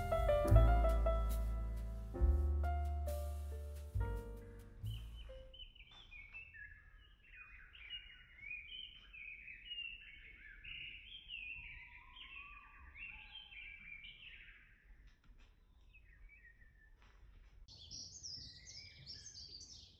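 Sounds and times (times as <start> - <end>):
birds singing and chirping: 4.8 - 15.0, 17.7 - 19.9.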